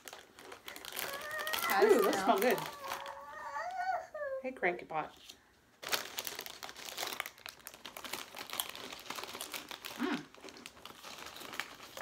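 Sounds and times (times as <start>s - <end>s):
plastic bag crinkling: 0.0s - 3.8s, 5.8s - 12.0s
chips being chewed: 6.9s - 12.0s.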